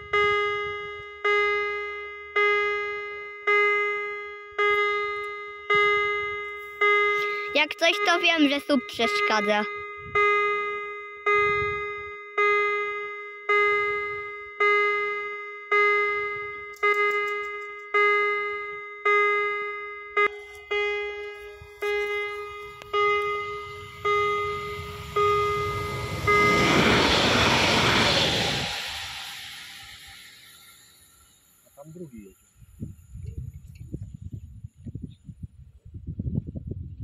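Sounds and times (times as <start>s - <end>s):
level-crossing warning bell: 0.0s - 27.5s
train rushing past: 20.8s - 31.6s.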